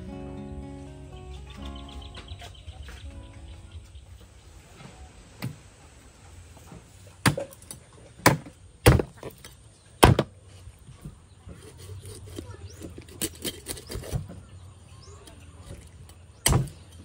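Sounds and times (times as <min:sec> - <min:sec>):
cleaver chopping chicken on wood: 0:08.2 - 0:09.2.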